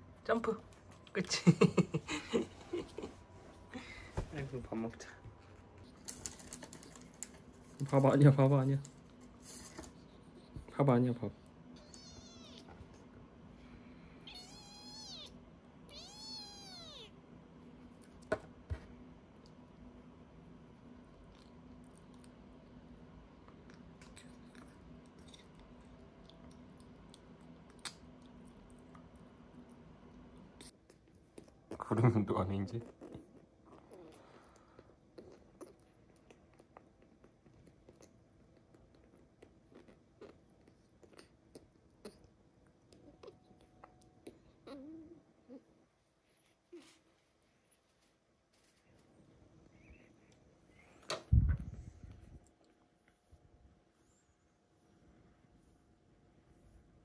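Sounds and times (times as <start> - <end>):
kitten meowing: 11.8 - 12.7, 14.2 - 17.1.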